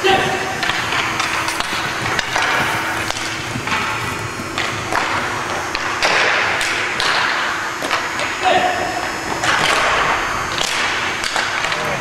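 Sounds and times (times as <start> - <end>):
faint steady hum: 0.0 - 12.0
sticks clacking on puck: 0.6 - 3.9, 10.6 - 12.0
skate blades scraping on ice: 0.6 - 6.5.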